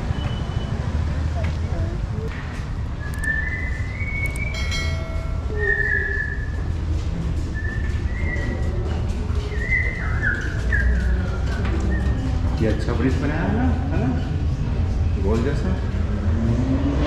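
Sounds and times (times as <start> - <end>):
whistled tune: 3.0 - 4.9, 5.5 - 6.8, 7.5 - 8.7, 9.5 - 11.1.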